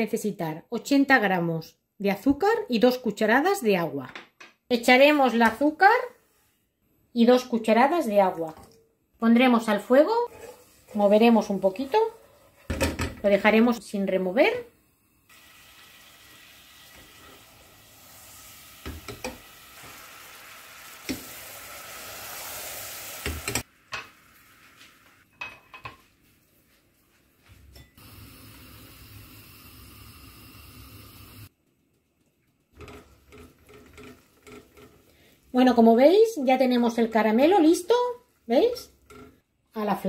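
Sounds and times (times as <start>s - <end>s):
spatula stirring caramel: 10.3s - 12.7s, 32.7s - 35.3s
syrup bubbling in a pot: 28.1s - 35.6s.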